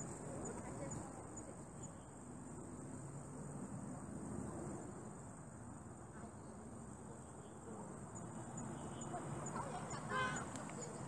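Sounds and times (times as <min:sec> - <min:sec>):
insects droning: 0:06.8 - 0:11.0.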